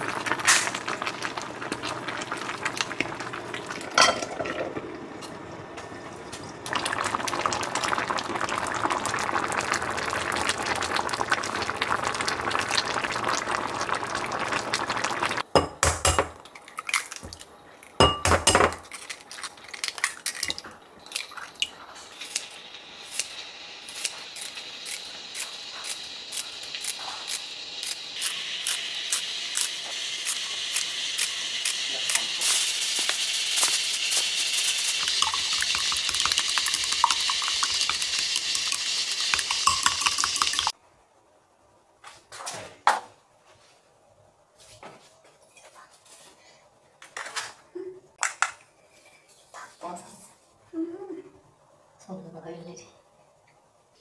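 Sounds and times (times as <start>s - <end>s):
steady hiss: 22.0s - 40.8s.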